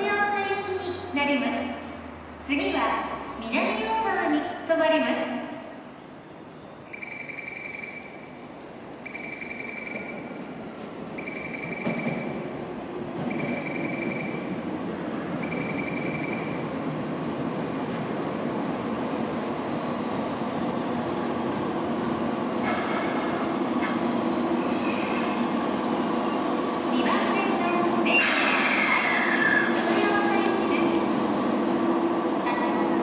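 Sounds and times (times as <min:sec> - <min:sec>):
train running noise: 0:06.8 - 0:33.0
wheel and brake squeal: 0:28.1 - 0:29.8.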